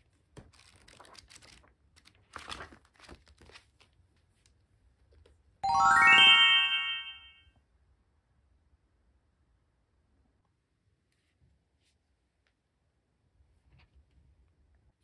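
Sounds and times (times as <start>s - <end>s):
bright ringing tone: 5.6s - 7.4s.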